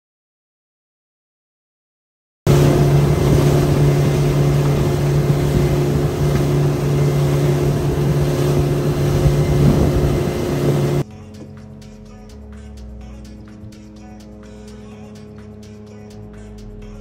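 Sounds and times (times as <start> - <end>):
rush of wake and air: 2.5 - 11.0
outboard motor droning: 2.5 - 17.0.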